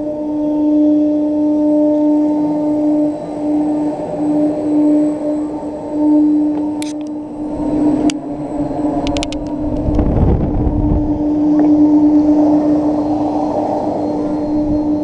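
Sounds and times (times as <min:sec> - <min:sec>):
ride drive hum: 0:05.4 - 0:15.0
wind rumbling on microphone: 0:05.5 - 0:15.0.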